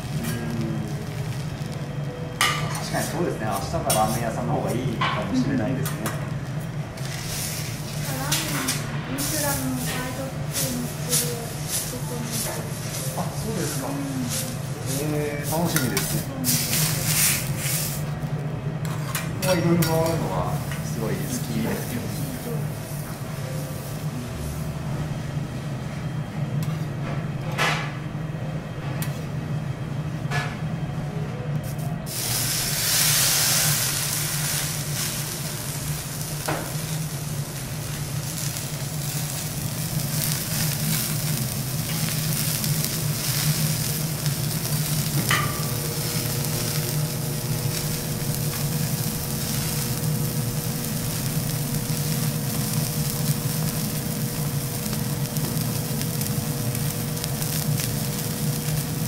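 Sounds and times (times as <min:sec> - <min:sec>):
steak sizzling on hot plate: 0:00.0 - 0:18.2, 0:32.1 - 0:59.0.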